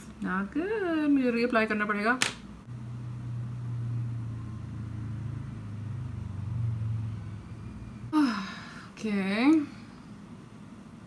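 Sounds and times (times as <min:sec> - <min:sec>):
woman's voice: 0:00.2 - 0:02.3, 0:08.2 - 0:09.8
low motor rumble: 0:02.6 - 0:08.5.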